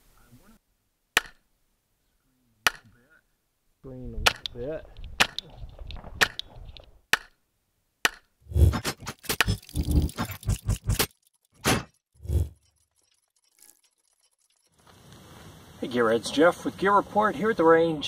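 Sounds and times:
pistol shots: 5.2 - 5.5.

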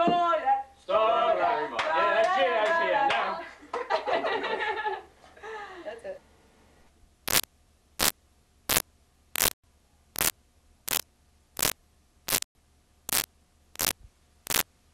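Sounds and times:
videotape static bursts: 7.3 - 8.1, 9.4 - 9.6, 11.6 - 12.5, 13.1 - 14.6.

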